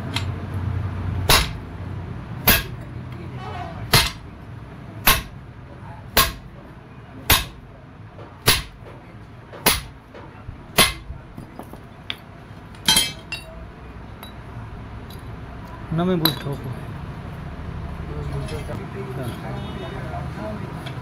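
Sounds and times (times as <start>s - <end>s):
hammer striking steel: 1.3s - 1.6s, 2.4s - 2.8s, 3.9s - 4.3s, 5.0s - 5.4s, 6.1s - 6.5s, 7.2s - 7.6s, 8.4s - 8.9s, 9.6s - 10.0s, 10.8s - 11.1s, 12.9s - 13.5s
loud ringing metal clang: 1.3s - 1.6s, 2.4s - 2.8s, 5.0s - 5.4s.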